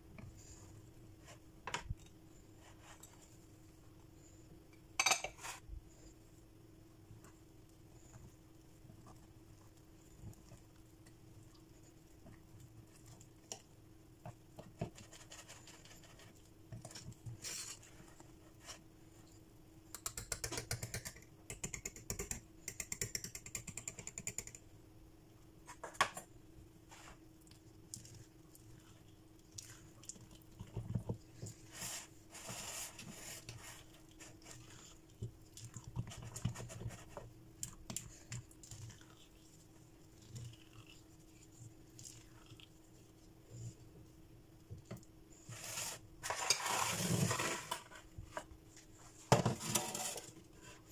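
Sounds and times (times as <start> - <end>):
faint steady hum: 0.0 - 50.9.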